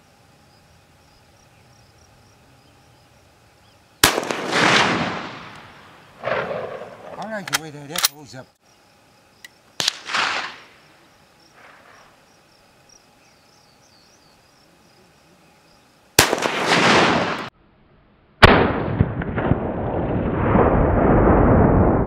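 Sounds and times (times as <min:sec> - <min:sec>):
rolling echo off hills: 0:00.4 - 0:17.6
rifle shots: 0:04.0 - 0:08.1, 0:09.8 - 0:10.8, 0:16.2 - 0:17.5, 0:18.4 - 0:19.9.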